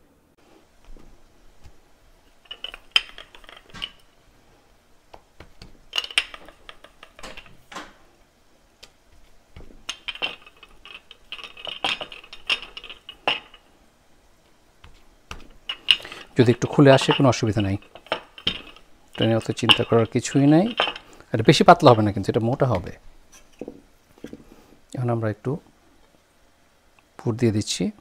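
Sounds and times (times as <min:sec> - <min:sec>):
rolling pin knocking on surface: 0:14.8 - 0:15.6.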